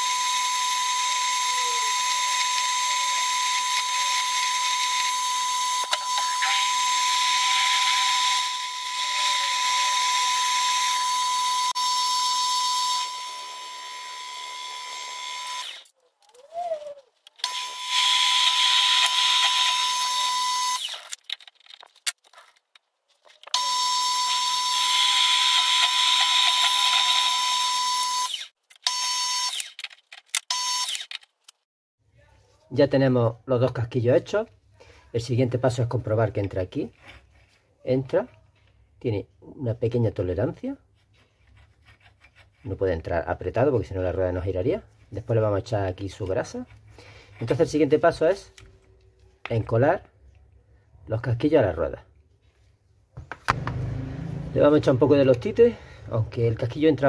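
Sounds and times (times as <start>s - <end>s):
drill bit cutting metal: 0.0s - 15.9s, 17.4s - 21.0s, 23.6s - 28.5s
handling noises: 20.8s - 23.6s.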